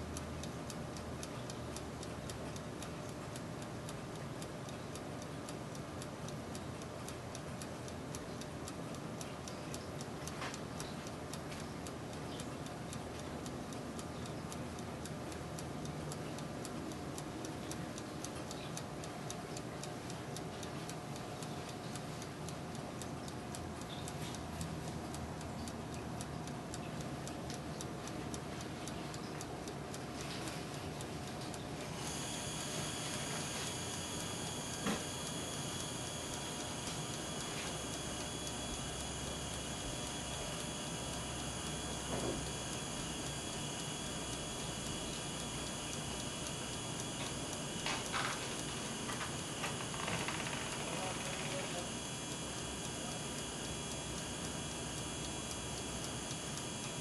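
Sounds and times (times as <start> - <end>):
oven fan whirring: 0.0 - 57.0
timer ticking: 0.0 - 57.0
sharp click: 46.4 - 51.8.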